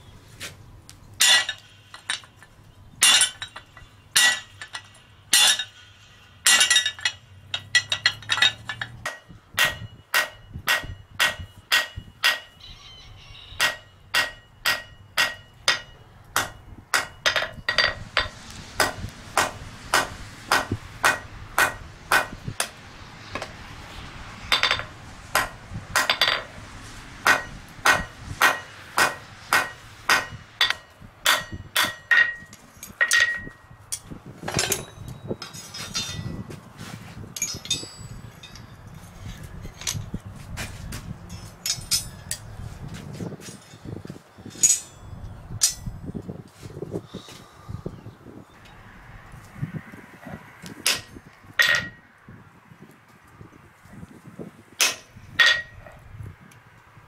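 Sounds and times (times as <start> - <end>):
hammer ringing on anvil: 13.6 - 18.3.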